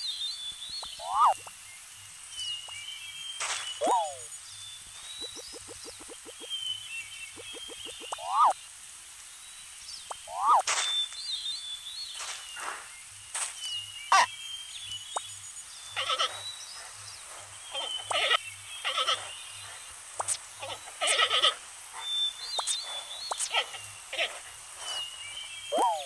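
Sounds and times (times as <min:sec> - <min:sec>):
thin high chirps: 0:00.8 - 0:01.5, 0:05.0 - 0:06.6, 0:07.3 - 0:08.6, 0:22.3 - 0:23.6, 0:24.8 - 0:26.0.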